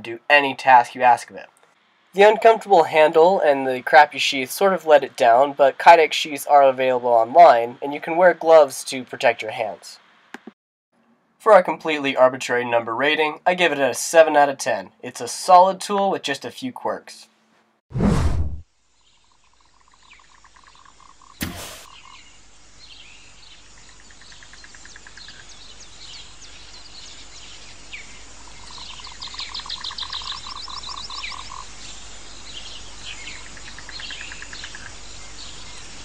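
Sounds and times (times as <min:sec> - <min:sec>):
loud whoosh: 0:17.9 - 0:18.6
birds chirping: 0:19.0 - 0:36.0
frogs trilling: 0:19.0 - 0:36.0.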